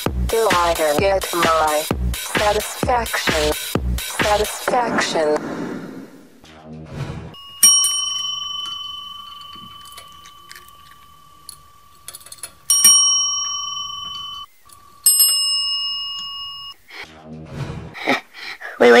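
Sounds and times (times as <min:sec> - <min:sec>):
service bell ringing: 0:07.4 - 0:16.8.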